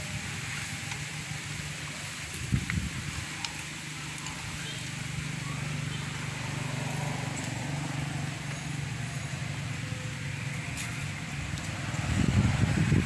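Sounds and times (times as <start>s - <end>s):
low engine hum: 0.0s - 13.0s
wind rumbling on microphone: 0.0s - 13.0s.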